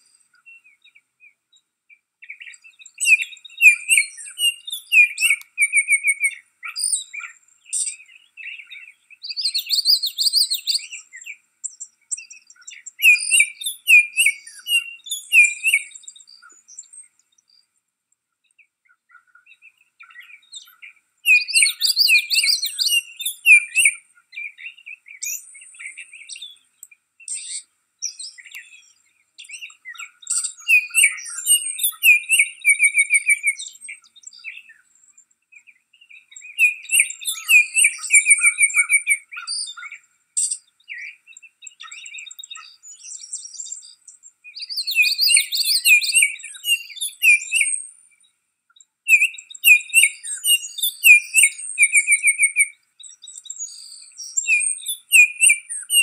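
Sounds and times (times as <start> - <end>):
bird whistling call: 2.3 - 11.3, 12.2 - 16.0, 20.0 - 26.6, 27.3 - 34.7, 36.4 - 43.8, 44.5 - 47.9, 49.1 - 52.8, 53.4 - 56.0.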